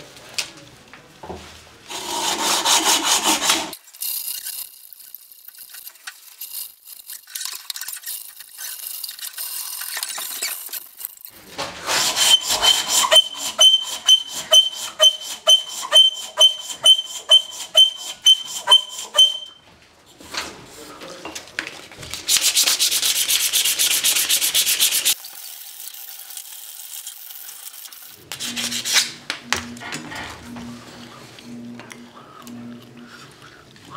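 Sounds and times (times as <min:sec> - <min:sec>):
sanding cloth squeaking strokes: 0:12.0 - 0:19.5, 0:22.3 - 0:25.2
sanding cloth hissing: 0:22.3 - 0:25.2.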